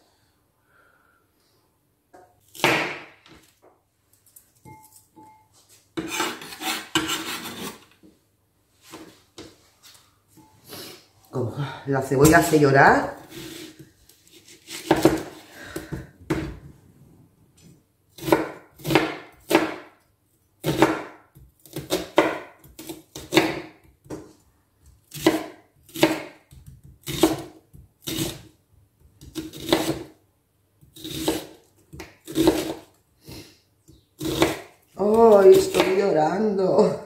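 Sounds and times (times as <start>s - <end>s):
knife chopping on wooden board: 2.5s - 3.1s, 14.4s - 16.5s, 18.2s - 19.9s, 20.6s - 24.3s, 25.1s - 28.4s, 29.2s - 30.1s, 30.9s - 32.9s, 34.2s - 34.7s.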